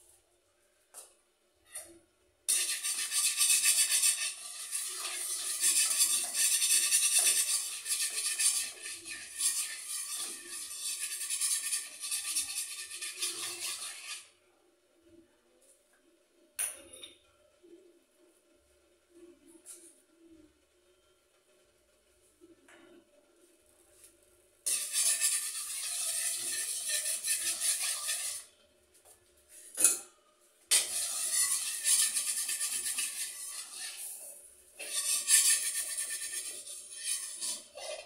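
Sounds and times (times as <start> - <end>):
metal spatula scraping a wok: 2.5 - 14.3, 24.7 - 28.5, 30.7 - 38.0.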